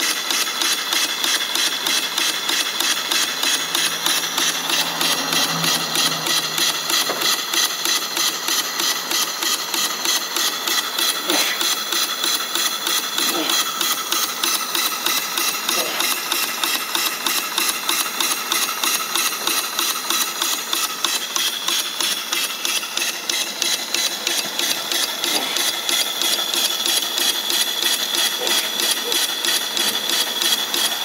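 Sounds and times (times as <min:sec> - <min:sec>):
steam engine chuffing and knocking: 0:00.0 - 0:31.0
steady high-pitched tone: 0:03.2 - 0:07.7.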